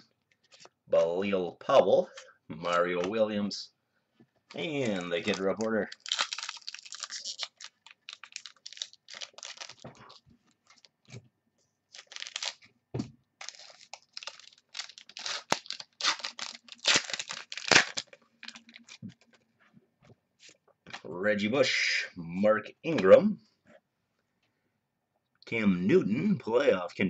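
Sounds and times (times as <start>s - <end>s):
foil wrapper tearing and crinkling: 4.5s - 10.9s, 11.9s - 12.7s, 13.4s - 19.4s.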